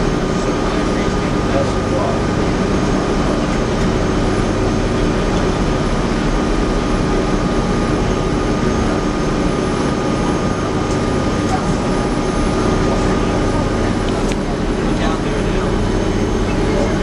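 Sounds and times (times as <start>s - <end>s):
train diesel engine drone: 0.0s - 17.0s.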